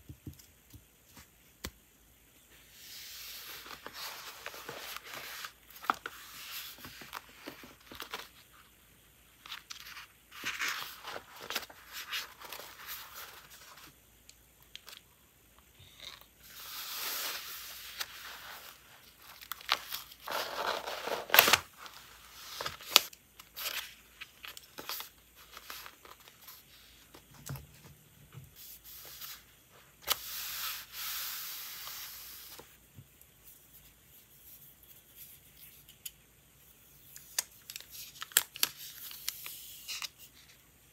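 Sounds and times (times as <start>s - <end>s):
paper pages rustling: 3.3s - 8.5s, 9.4s - 13.9s, 16.6s - 27.8s.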